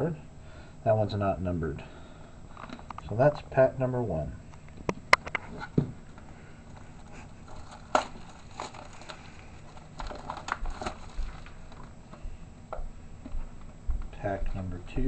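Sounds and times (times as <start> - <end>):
card pack crinkling: 5.2 - 12.0.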